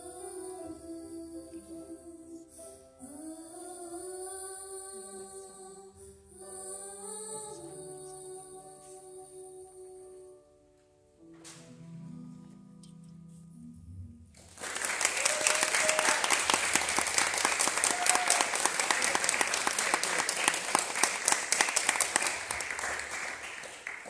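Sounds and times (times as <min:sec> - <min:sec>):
audience applauding: 0:14.4 - 0:24.0.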